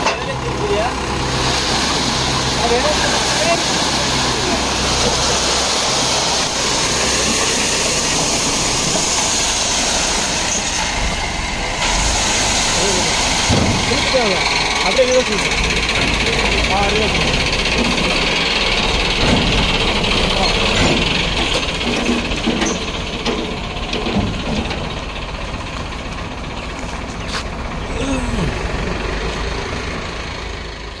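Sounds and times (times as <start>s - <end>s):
hydraulic trailer lowering: 0.0s - 30.9s
tractor engine running: 0.0s - 31.0s
soil and stones pouring from trailer: 1.2s - 11.0s.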